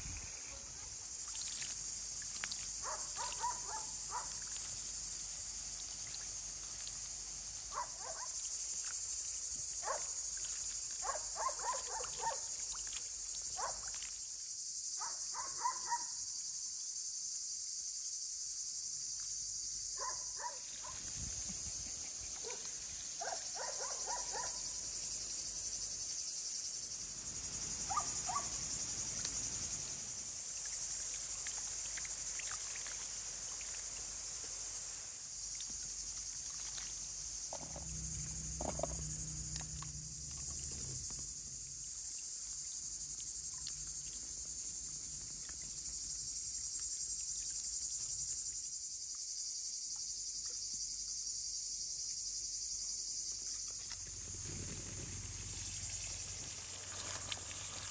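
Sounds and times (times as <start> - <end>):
high insect chorus: 0.0 - 57.9.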